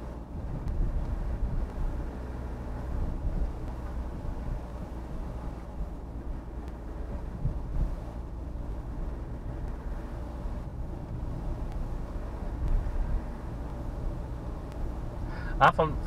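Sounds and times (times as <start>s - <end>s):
engine and tyre rumble: 0.0s - 16.0s.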